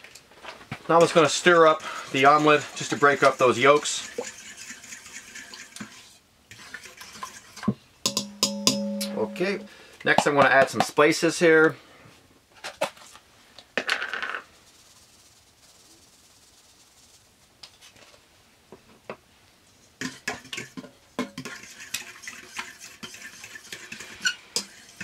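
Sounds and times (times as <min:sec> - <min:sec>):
fork whisking in metal bowl: 0:00.9 - 0:09.6, 0:20.0 - 0:25.0.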